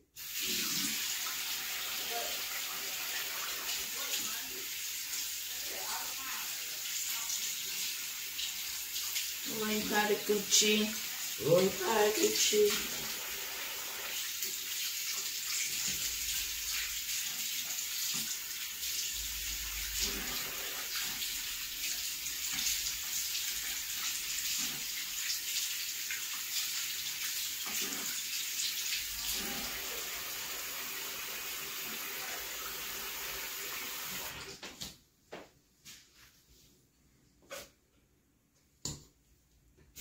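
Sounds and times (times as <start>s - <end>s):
sink tap running: 7.3s - 34.5s.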